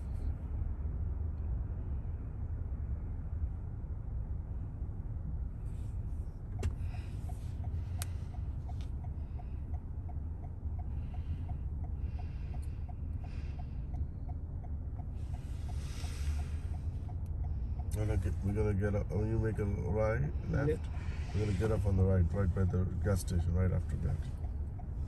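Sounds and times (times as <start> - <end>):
car road and engine rumble: 0.0 - 25.0
turn signal ticking: 6.4 - 25.0.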